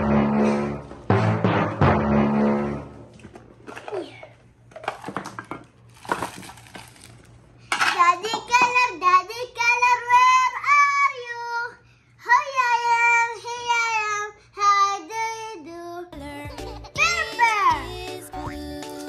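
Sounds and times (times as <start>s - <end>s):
loud musical sting: 0.0s - 3.1s
wrapped sweets rustling and clattering: 3.2s - 7.9s
child's sing-song voice: 7.9s - 19.0s.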